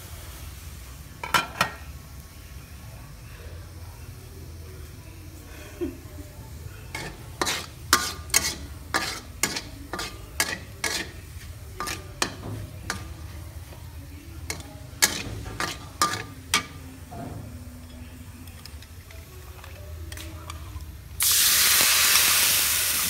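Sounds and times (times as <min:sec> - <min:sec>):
metal ladle scraping wok: 0:06.9 - 0:13.3, 0:14.4 - 0:20.8.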